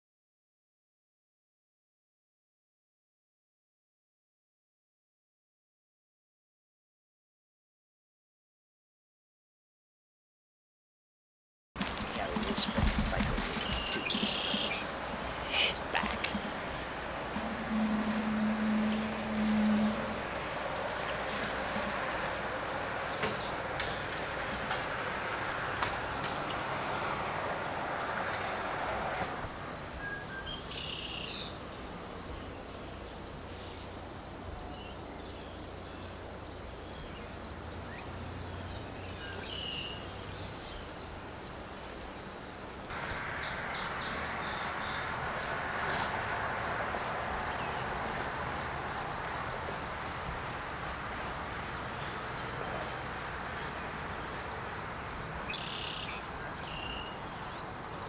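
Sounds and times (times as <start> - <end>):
background hiss: 11.9 - 20.8
insects chirping: 40.1 - 58.0.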